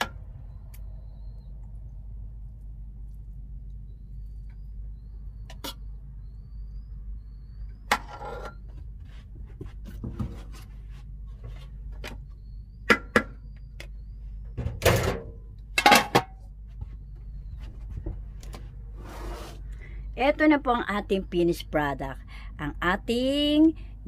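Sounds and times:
steady low hum: 0.0 - 24.0
metal spoon scraping a pot: 8.0 - 8.6.

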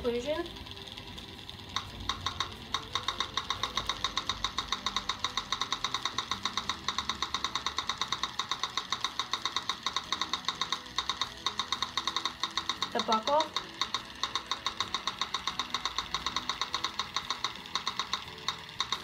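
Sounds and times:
rapid high electronic ticks: 0.0 - 19.0.

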